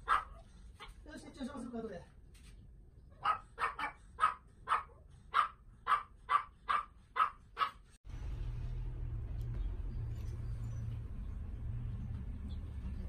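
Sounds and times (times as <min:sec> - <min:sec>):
dog barking: 0:00.0 - 0:00.9, 0:03.2 - 0:07.8.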